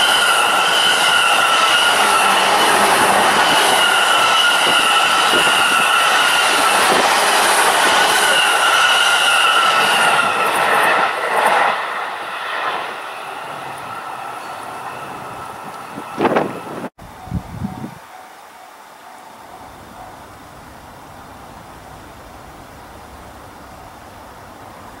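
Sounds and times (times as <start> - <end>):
high ringing tone: 0.0 - 6.9, 11.9 - 20.4
electric train passing: 0.0 - 25.0.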